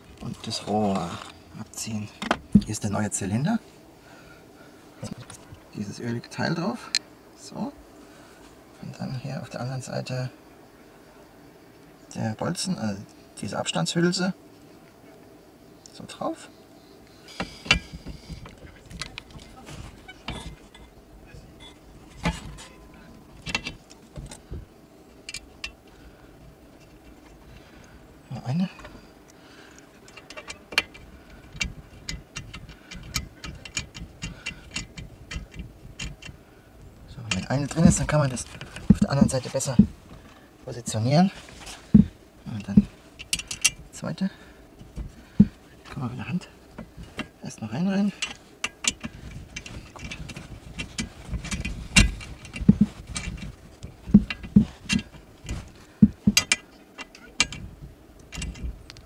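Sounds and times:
hand-handling rumble: 0.0 - 7.8, 17.2 - 59.0
small metal clicks and knocks: 17.3 - 21.0, 21.6 - 27.7, 29.7 - 36.4, 37.0 - 40.3, 41.5 - 44.1, 48.1 - 59.0
hand tool clicking on metal bolt: 30.1 - 36.4, 48.2 - 57.6.

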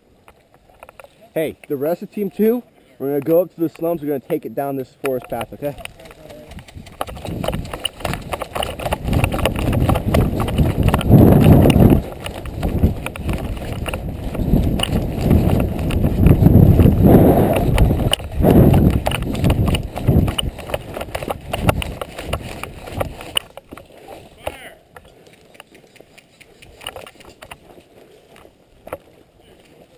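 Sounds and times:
footsteps running on dry grass: 5.3 - 29.9
wind buffeting microphone: 5.4 - 25.1.

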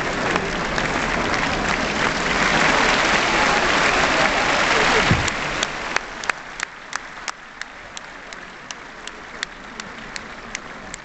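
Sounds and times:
audience applause: 0.0 - 11.0
faint murmur of hall: 0.0 - 11.0.

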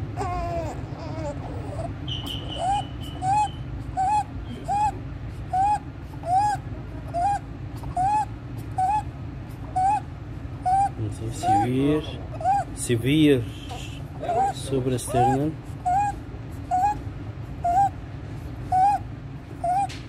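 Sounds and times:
baby whimper: 0.0 - 9.1, 9.7 - 10.1, 10.7 - 12.8, 13.6 - 17.0, 17.6 - 18.0, 18.7 - 19.0, 19.6 - 20.0.

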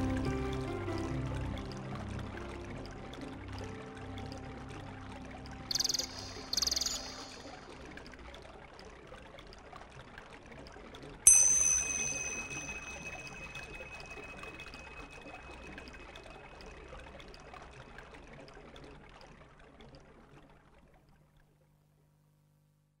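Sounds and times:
steady rushing water-like noise: 0.0 - 9.0, 11.3 - 18.6
sharp metallic clink ringing: 11.3 - 15.4.

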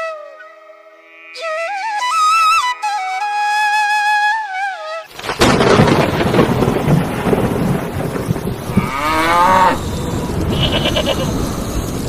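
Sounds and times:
cow mooing: 1.1 - 1.4, 8.7 - 11.4
rain hissing: 5.1 - 12.0
thunder crack and rumble: 5.2 - 12.0.

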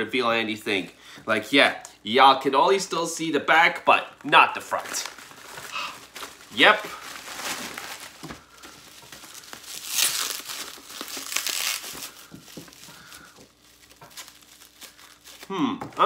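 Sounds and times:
plastic bag crinkling and tearing: 4.2 - 15.6
bubble-wrapped package handled: 4.2 - 16.0.

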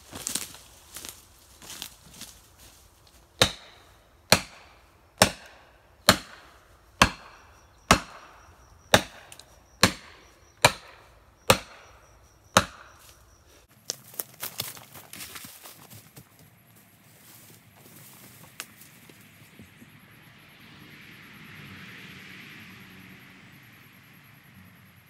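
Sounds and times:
footsteps in leaf litter: 0.0 - 3.4, 13.7 - 19.4
tool striking wood: 3.4 - 11.9, 12.5 - 13.1.

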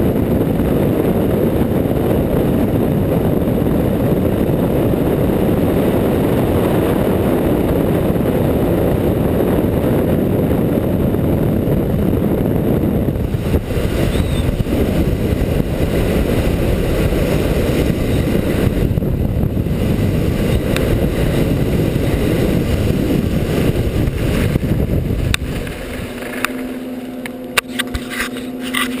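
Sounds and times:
wind buffeting microphone: 0.0 - 29.0
sharp clicks and scrapes: 25.3 - 29.0.

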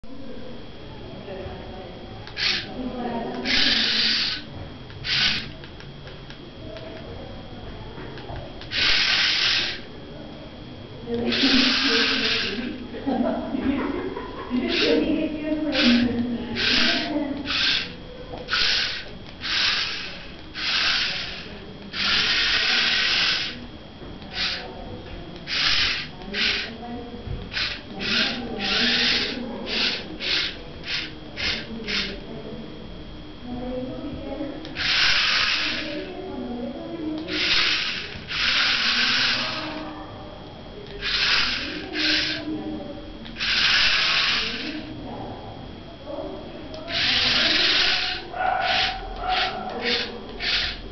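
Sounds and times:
small electric motors whirring: 2.1 - 7.1, 8.2 - 10.0, 11.0 - 13.0, 14.5 - 32.3, 34.6 - 36.2, 37.1 - 40.0, 40.8 - 45.0, 46.7 - 50.9.

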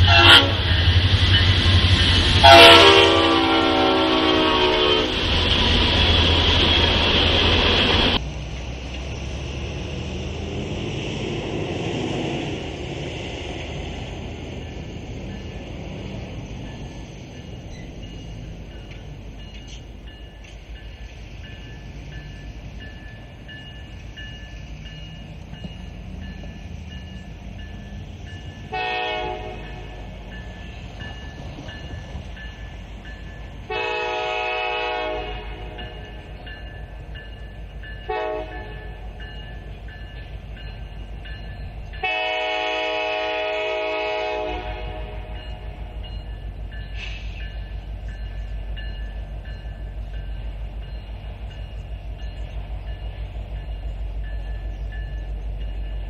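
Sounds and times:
locomotive air horn blasts: 0.0 - 0.7, 2.4 - 5.4, 28.7 - 30.1, 33.7 - 36.2, 38.1 - 39.2, 42.0 - 45.8
crossing bell ringing: 0.0 - 8.2, 12.9 - 56.0
train rumbling: 0.0 - 56.0.

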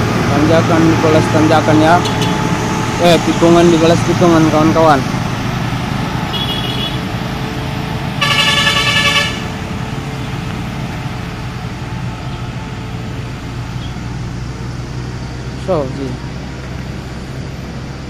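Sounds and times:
truck engine labouring: 0.0 - 18.0
vehicle horn: 2.0 - 2.4, 6.3 - 7.1, 8.2 - 9.6.

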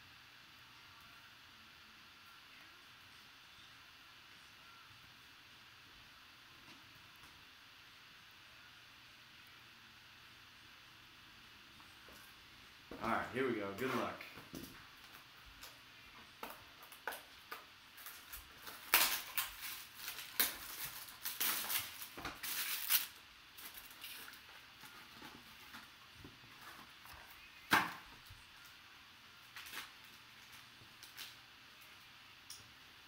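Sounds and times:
wrapper rustling and crinkling: 16.8 - 27.3, 29.5 - 31.9.

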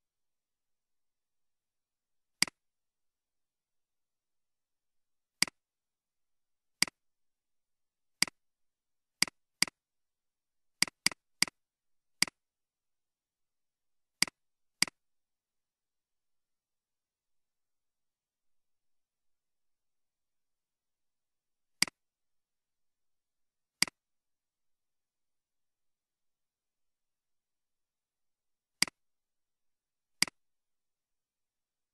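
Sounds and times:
computer mouse clicks: 2.4 - 2.6, 5.4 - 5.6, 6.8 - 7.0, 8.2 - 8.4, 9.2 - 9.8, 10.8 - 11.6, 12.2 - 12.4, 14.2 - 15.0, 21.8 - 22.0, 23.8 - 24.0, 28.8 - 29.0, 30.2 - 30.4.

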